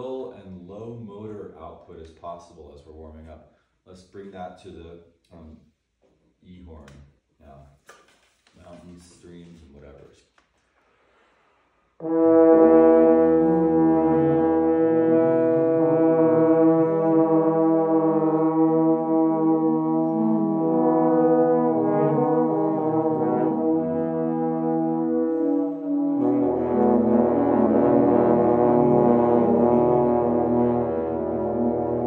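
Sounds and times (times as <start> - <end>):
french horns warming up: 10.9 - 32.0.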